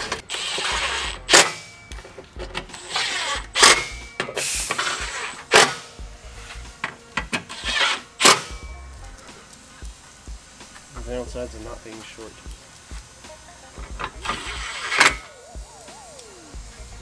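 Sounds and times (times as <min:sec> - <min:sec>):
sharp ratchet click: 0:00.0 - 0:05.9, 0:07.4 - 0:08.7
electric ratchet running: 0:00.0 - 0:17.0.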